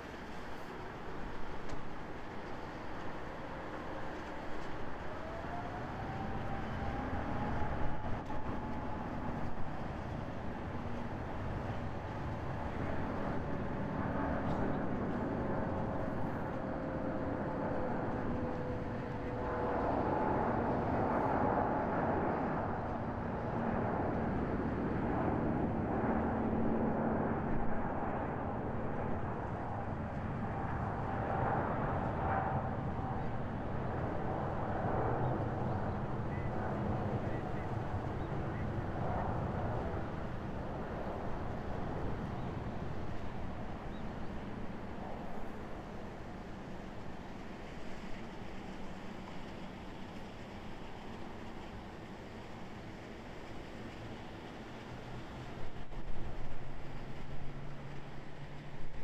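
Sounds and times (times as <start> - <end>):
jet engines at takeoff: 0.0 - 59.0.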